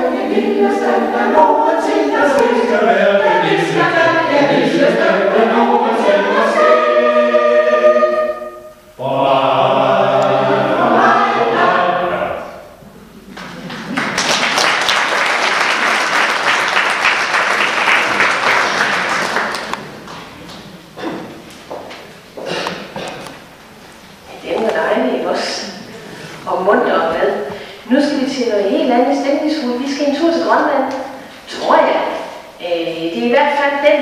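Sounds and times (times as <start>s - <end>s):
mixed choir singing: 0.0s - 12.8s
audience applauding: 13.3s - 20.3s.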